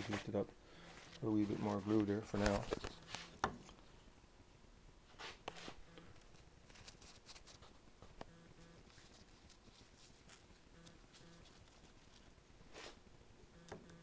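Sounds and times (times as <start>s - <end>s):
faint buzz: 5.2s - 6.5s, 8.0s - 9.2s, 10.2s - 11.9s, 12.6s - 14.0s.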